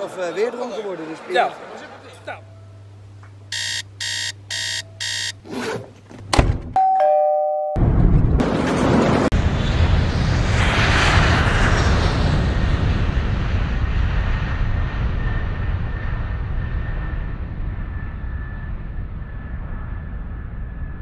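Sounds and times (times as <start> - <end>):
aircraft roaring past: 8.5 - 18.6.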